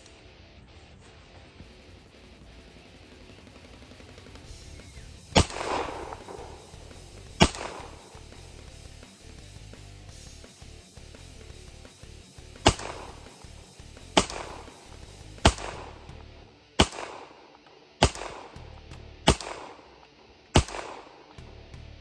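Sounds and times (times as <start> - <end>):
pistol shots: 5.3 - 8.3, 12.6 - 13.4, 14.2 - 16.1, 16.8 - 18.6, 19.2 - 21.4.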